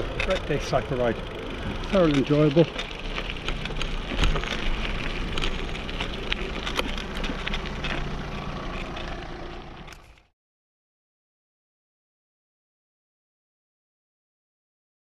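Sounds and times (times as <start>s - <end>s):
low rumble: 0.0s - 10.2s
bike clicks and knocks: 0.0s - 10.3s
bike tyres crunching on gravel: 0.0s - 10.3s.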